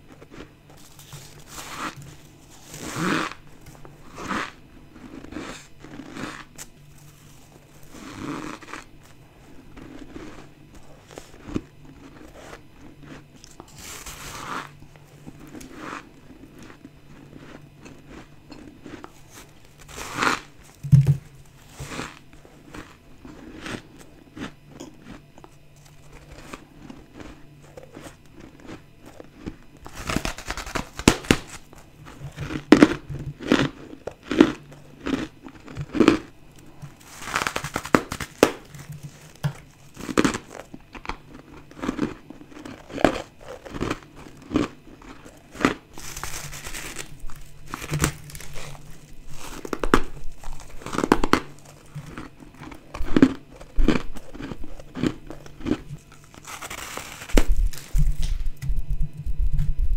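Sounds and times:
crunching ice chewing: 0.0s - 58.4s.

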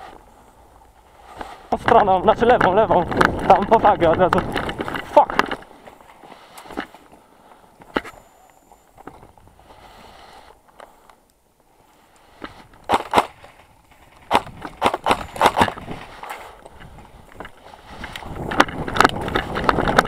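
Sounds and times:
footsteps crunching on rubble: 1.4s - 7.2s.

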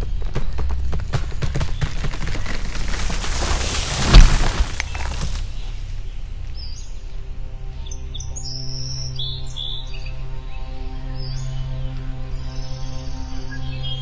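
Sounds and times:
crackling whoosh: 2.2s - 6.0s
sharp boom: 3.5s - 5.5s.

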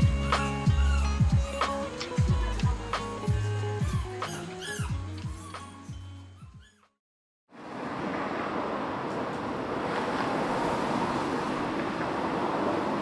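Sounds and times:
background music: 0.0s - 6.6s.

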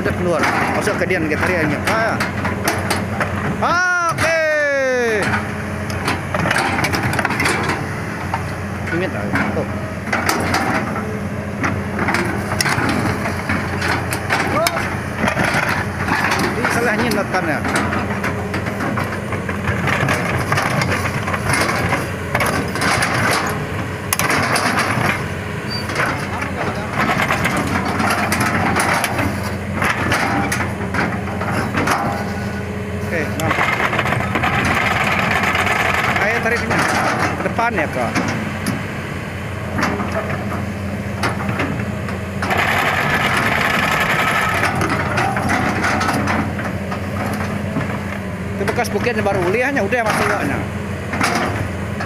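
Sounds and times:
diesel engine running: 0.0s - 52.0s
metal track chain clanking: 11.6s - 32.4s, 42.4s - 48.0s.

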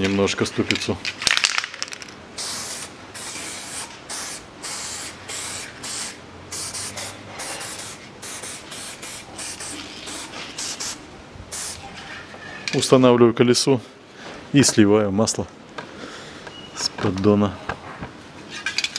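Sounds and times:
aerosol spray can hissing: 2.4s - 11.8s.

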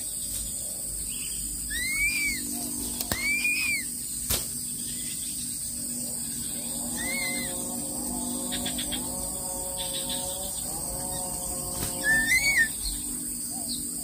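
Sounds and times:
eagle whistling: 1.7s - 2.5s, 3.1s - 3.9s, 7.0s - 7.5s, 12.0s - 13.0s.

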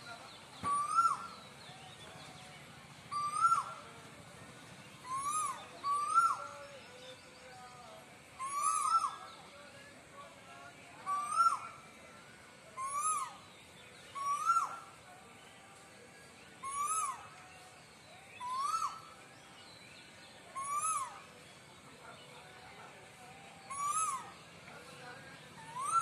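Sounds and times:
cuckoo calling: 0.0s - 2.4s, 3.1s - 4.0s, 5.0s - 9.6s, 11.0s - 12.0s, 12.7s - 15.1s, 16.6s - 21.7s, 23.5s - 26.0s.

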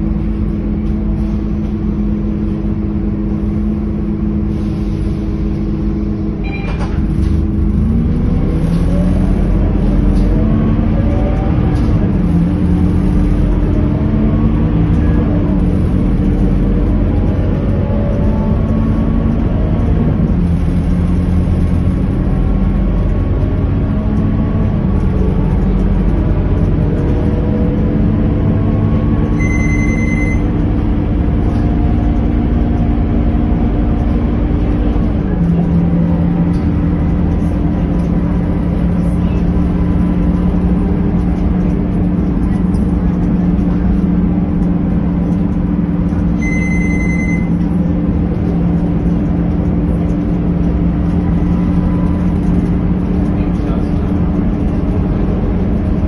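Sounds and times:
bus engine running: 0.0s - 56.0s
short high beep: 6.4s - 6.8s, 29.4s - 30.5s, 46.4s - 47.6s.

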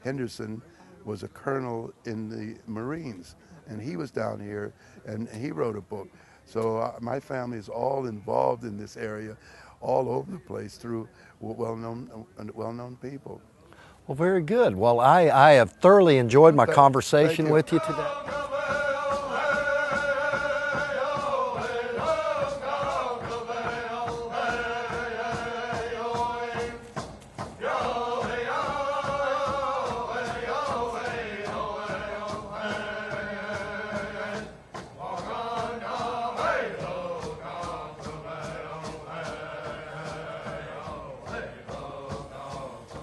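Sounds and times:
male voices chanting: 16.1s - 26.8s, 27.6s - 43.0s
steady drum beat: 16.2s - 43.0s.

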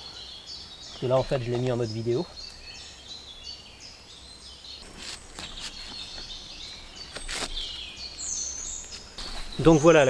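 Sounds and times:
songbirds singing: 0.0s - 10.0s
camera rustling and knocking: 4.8s - 6.4s, 7.0s - 7.7s.

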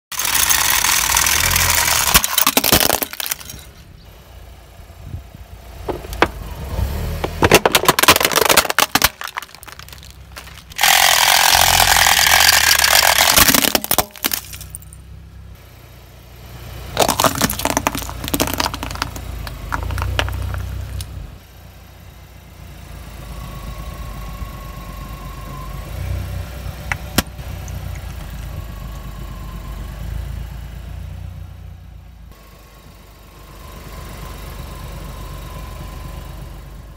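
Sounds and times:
car engine running: 0.1s - 36.9s
tyre crushing objects: 7.1s - 14.8s, 17.0s - 21.0s.

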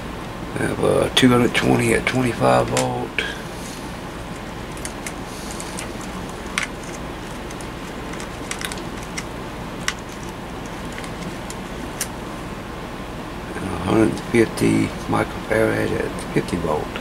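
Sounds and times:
steady background hum: 0.0s - 17.0s
fingers clicking on wires: 4.1s - 12.2s.

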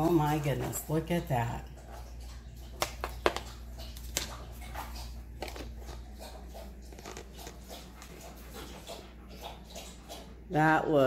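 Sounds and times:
dog claws clicking and scuffing: 2.6s - 10.3s.

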